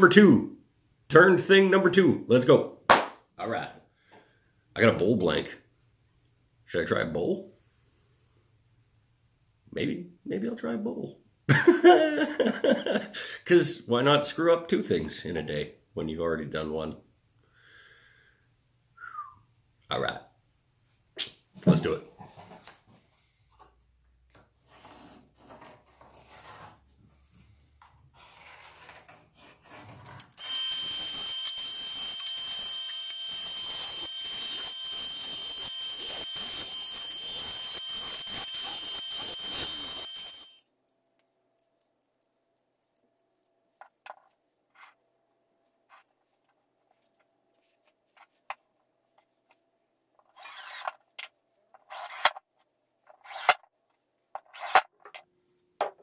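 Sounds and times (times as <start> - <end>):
pencil scratching: 24.6 - 26.9, 28.2 - 30.2
cordless drill driving screws: 30.4 - 40.6, 50.4 - 50.9, 51.9 - 52.4, 54.5 - 54.8.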